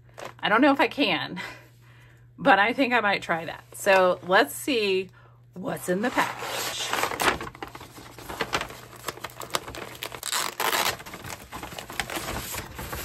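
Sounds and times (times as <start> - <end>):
paper crinkling and rustling: 6.1 - 13.0.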